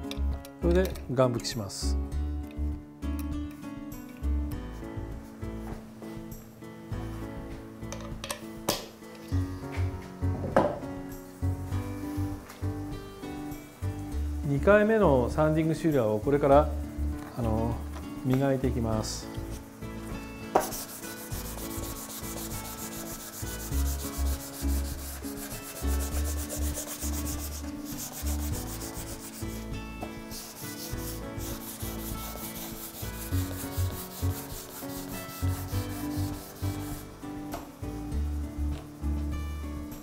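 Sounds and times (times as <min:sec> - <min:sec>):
sandpaper rubbing on wood: 0:20.6 - 0:29.7, 0:30.3 - 0:37.1.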